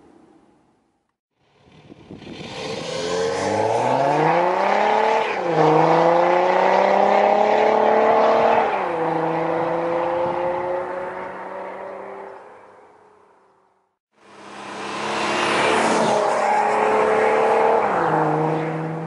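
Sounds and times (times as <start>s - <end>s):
diesel car engine accelerating: 1.4s - 12.3s, 14.3s - 19.0s.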